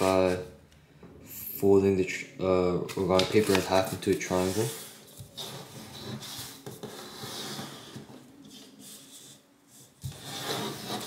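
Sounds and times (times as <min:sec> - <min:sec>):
paper rustling on tabletop: 0:02.9 - 0:11.0.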